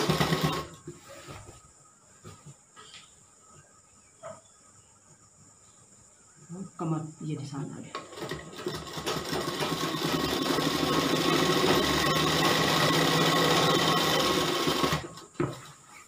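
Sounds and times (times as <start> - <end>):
sewing machine stitching: 0.0 - 0.8, 8.0 - 15.2.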